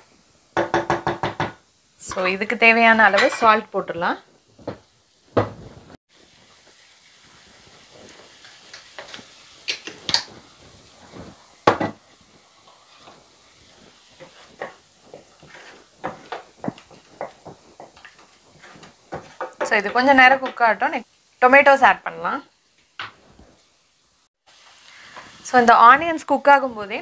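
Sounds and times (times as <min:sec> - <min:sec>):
onion paste sizzling in pan: 0:00.0 - 0:27.0
spoon scraping and knocking pan: 0:00.6 - 0:02.4, 0:03.0 - 0:03.6, 0:07.8 - 0:20.8.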